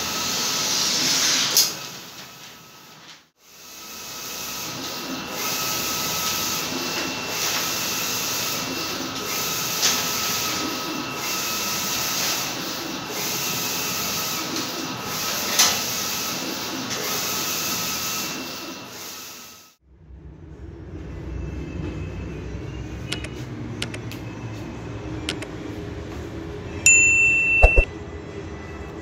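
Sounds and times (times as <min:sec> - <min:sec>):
inkjet printer running: 0:03.6 - 0:18.8
short sharp clicks: 0:27.6 - 0:27.9.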